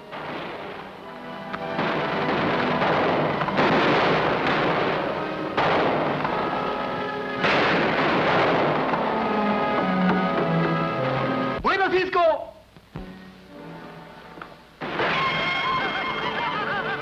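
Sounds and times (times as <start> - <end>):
background music: 0.0 - 17.0
loud gunshots with echo: 1.6 - 9.4.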